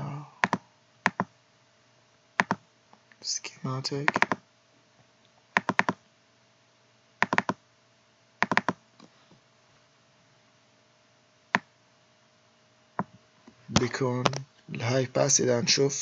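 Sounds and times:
computer mouse clicks: 0.4s - 1.3s, 2.4s - 2.6s, 4.0s - 4.4s, 5.6s - 6.0s, 7.2s - 7.6s, 8.4s - 9.1s.

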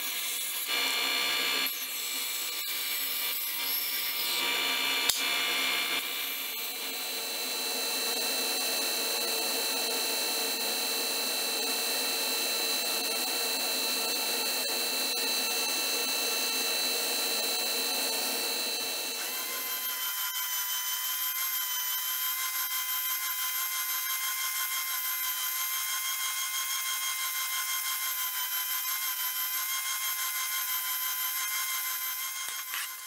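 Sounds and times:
spindle sander whining: 0.8s - 33.0s
belt sander running: 4.4s - 23.1s, 25.6s - 33.0s.

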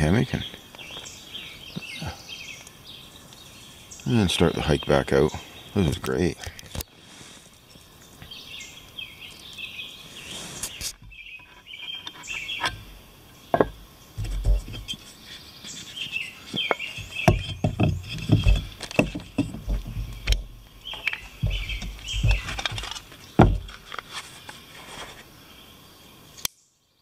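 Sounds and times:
small birds chirping: 0.0s - 27.0s
knocks and clunks of camp gear: 10.7s - 15.1s, 16.5s - 24.2s.

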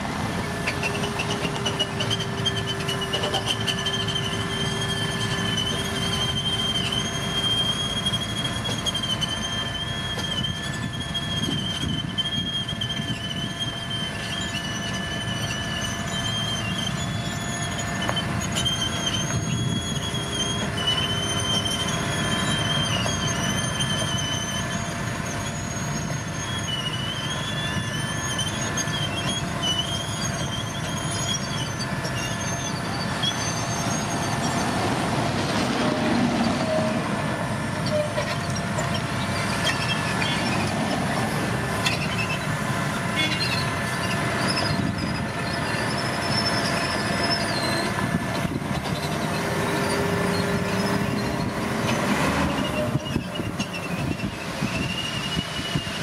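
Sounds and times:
heavy construction machinery running: 0.0s - 56.0s
high-pitched metallic squeal: 0.0s - 56.0s.

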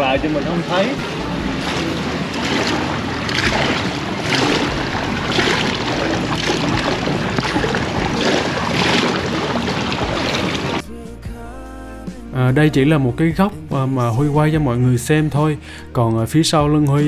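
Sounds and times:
pool water sloshing and lapping: 0.0s - 10.8s.

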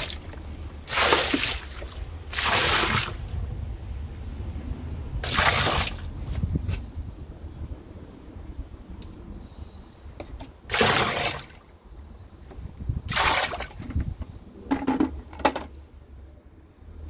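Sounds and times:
water splashing in a drain: 0.0s - 3.5s, 5.2s - 6.2s, 10.7s - 11.7s, 13.1s - 13.8s.

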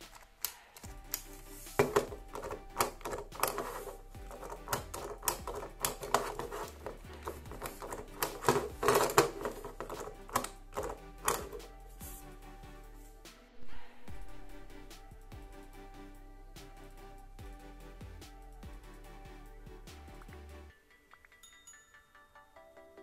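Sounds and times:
quiet background music: 0.0s - 23.0s
plastic toy clattering on tabletop: 1.8s - 11.6s.

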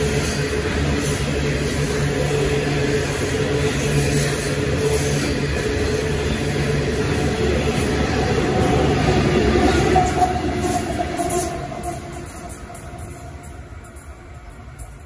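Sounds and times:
diesel locomotive engine hum: 0.0s - 15.0s.

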